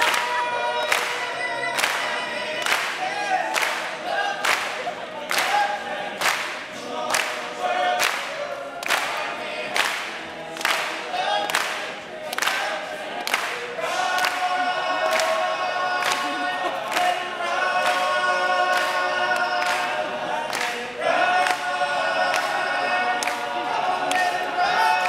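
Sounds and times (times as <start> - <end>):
sharp clap on the beat: 0.0 - 1.2, 1.8 - 5.6, 6.2 - 7.4, 8.0 - 14.5, 23.2 - 23.4
male a cappella group singing: 0.0 - 25.0.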